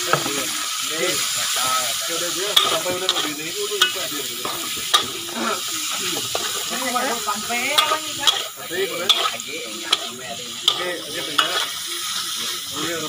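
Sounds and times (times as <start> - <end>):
meat sizzling in hot oil: 0.0 - 13.0
metal spatula scraping and clinking: 2.4 - 12.4.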